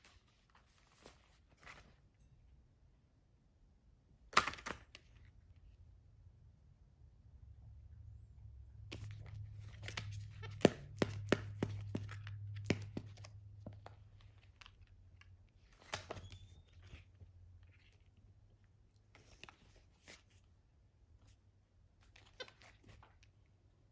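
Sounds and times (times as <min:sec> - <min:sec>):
rustling of pages and bedding: 0:00.0 - 0:02.4, 0:08.8 - 0:20.6, 0:21.2 - 0:23.9
taps and clicks from book: 0:08.9 - 0:14.8.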